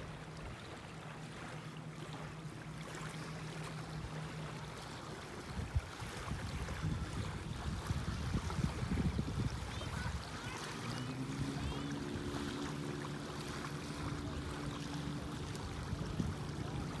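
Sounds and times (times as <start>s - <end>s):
distant motorboat engine drone: 0.0s - 17.0s
small waves lapping: 0.0s - 17.0s
wind rumbling on microphone: 4.2s - 17.0s.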